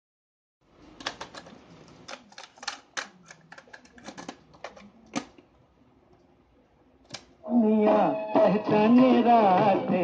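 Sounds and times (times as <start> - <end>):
plastic clicks of cassette deck: 7.0 - 7.3.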